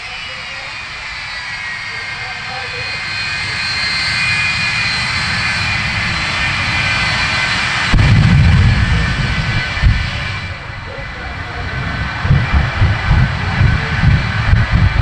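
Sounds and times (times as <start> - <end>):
jet engines whining: 0.0 - 15.0
deep loud blast: 5.4 - 15.0.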